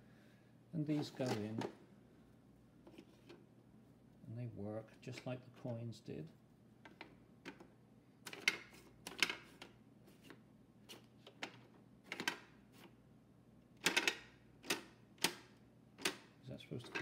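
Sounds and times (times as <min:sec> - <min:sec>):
toy cash register keys clicking: 0:13.8 - 0:15.4.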